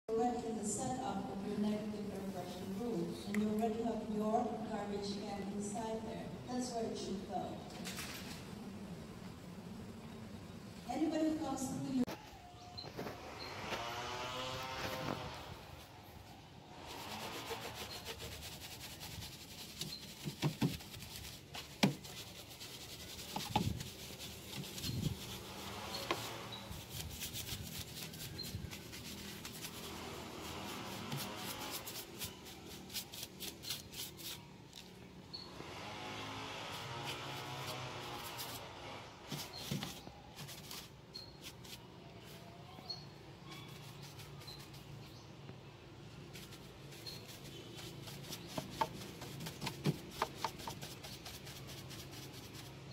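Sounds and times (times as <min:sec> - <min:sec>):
brush sweeping over plastic: 0:14.8 - 0:34.9, 0:35.8 - 0:42.5, 0:46.1 - 0:52.9.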